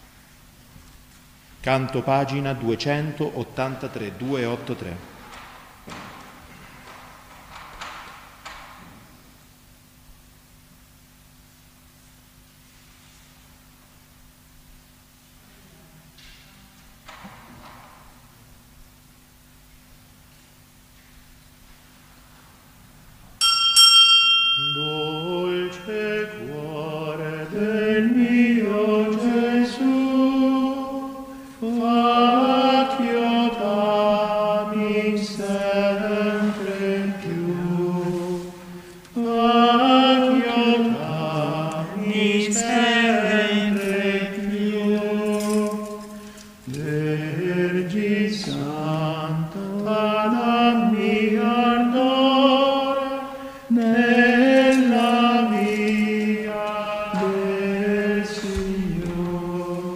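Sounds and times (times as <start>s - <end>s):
bright chime: 23.4s - 26.1s
voices singing a hymn: 24.6s - 59.9s.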